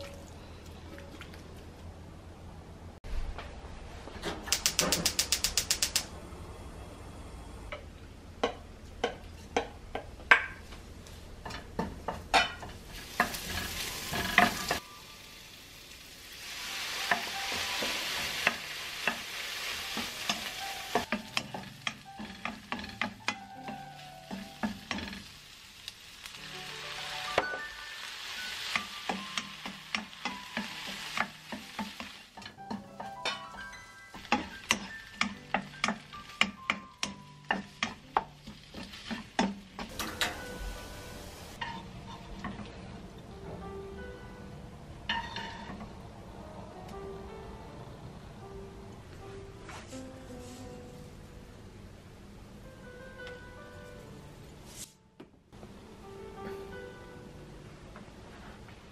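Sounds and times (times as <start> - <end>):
gas stove igniter clicking: 4.5 - 6.1
food sizzling in a pan: 12.8 - 41.8
spatula tapping and scraping pan: 20.0 - 25.2, 34.2 - 39.9.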